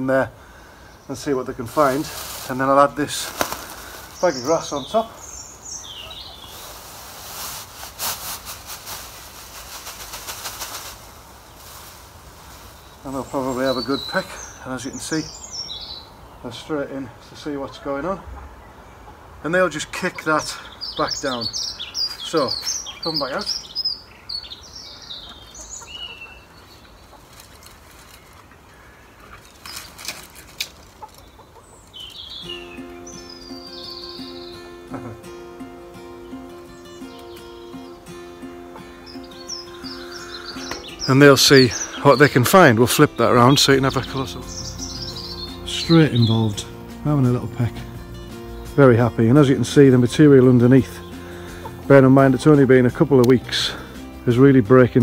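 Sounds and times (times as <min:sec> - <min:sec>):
hens: 0:00.0 - 0:35.2, 0:38.5 - 0:54.6
small birds chirping: 0:00.0 - 0:55.0
plastic bag rustling and crinkling: 0:01.6 - 0:05.0, 0:05.8 - 0:13.9, 0:26.9 - 0:32.3
wing flaps: 0:03.2 - 0:04.1, 0:06.6 - 0:12.9
background music: 0:32.4 - 0:55.0.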